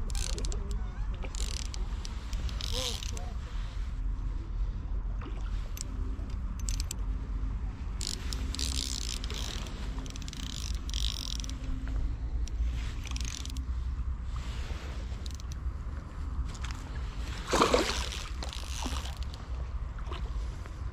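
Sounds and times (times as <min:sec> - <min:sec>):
fishing reel gears whirring: 0:00.0 - 0:03.4, 0:05.7 - 0:07.0, 0:07.9 - 0:11.7, 0:12.3 - 0:13.7, 0:15.2 - 0:15.6, 0:17.8 - 0:19.4
low wind rumble on microphone: 0:00.0 - 0:20.9.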